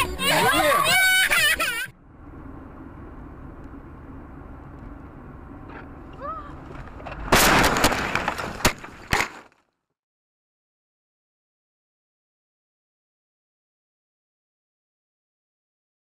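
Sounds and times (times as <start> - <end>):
road and engine noise in car: 0.0 - 7.4
loud car crash: 6.6 - 9.5
sharp impact bangs: 7.2 - 9.3.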